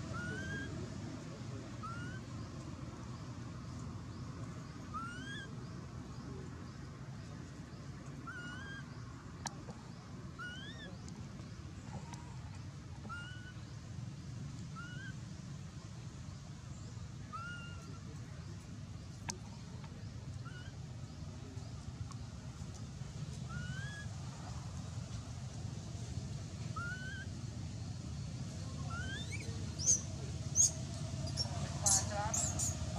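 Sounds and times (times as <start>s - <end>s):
low outdoor rumble: 0.0s - 32.9s
bird whistling rising notes: 26.8s - 27.3s.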